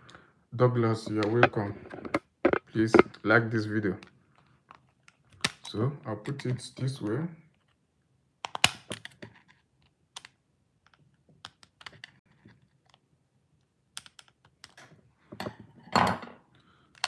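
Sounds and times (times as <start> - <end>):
screwdriver clicking and scraping: 1.0 - 3.1.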